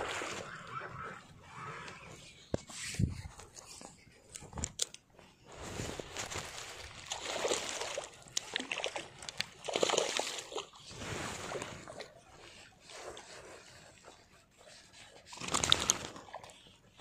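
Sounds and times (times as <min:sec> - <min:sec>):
shallow water sloshing: 0:05.7 - 0:17.0.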